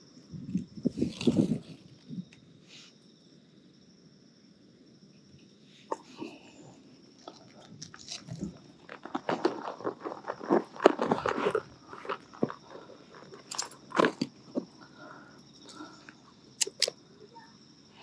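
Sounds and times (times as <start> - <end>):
metal grip clicks: 16.6 - 17.0.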